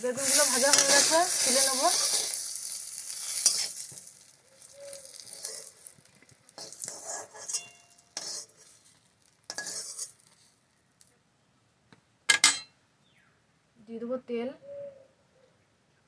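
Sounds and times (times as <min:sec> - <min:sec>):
eggplant sizzling in hot oil: 0:00.0 - 0:11.1
spatula scraping pan: 0:00.1 - 0:10.5.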